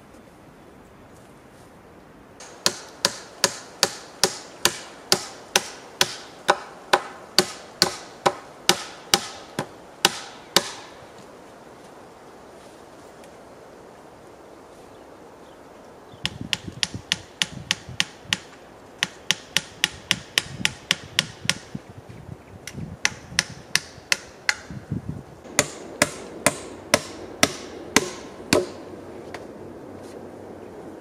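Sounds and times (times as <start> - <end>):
hammer blows on wood: 2.4 - 10.9, 16.2 - 21.8, 22.7 - 24.8, 25.5 - 28.8.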